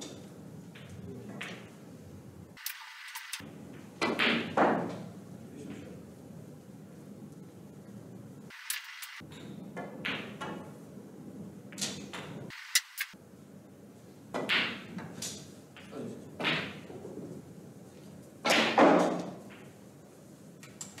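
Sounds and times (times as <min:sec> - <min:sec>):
snooker balls clicking: 0:00.1 - 0:01.8, 0:09.2 - 0:10.8
short bursts of noise: 0:08.5 - 0:09.2, 0:12.5 - 0:13.2.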